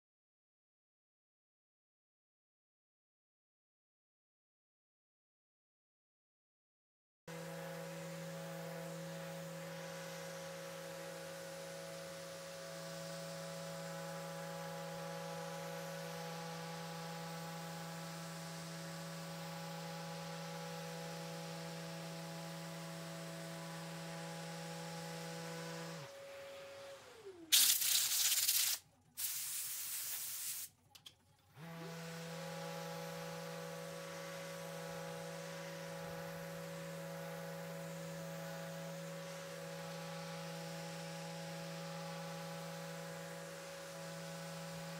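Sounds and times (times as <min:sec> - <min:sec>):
orbital sander humming: 0:07.3 - 0:28.8, 0:31.6 - 0:44.9
loud hissing bursts: 0:27.5 - 0:30.7.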